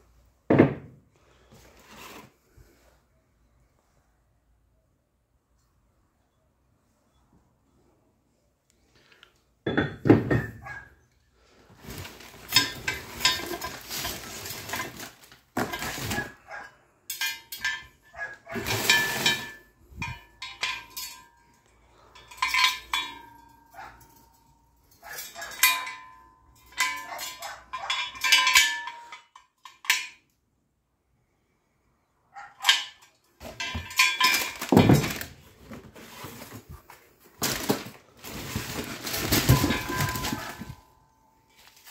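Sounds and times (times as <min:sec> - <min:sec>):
cardboard and plastic rustling: 0:01.4 - 0:03.0, 0:11.5 - 0:16.7, 0:18.4 - 0:19.7, 0:33.4 - 0:41.9
metal clanks and clinks: 0:11.8 - 0:30.3, 0:32.6 - 0:36.6, 0:37.4 - 0:41.9.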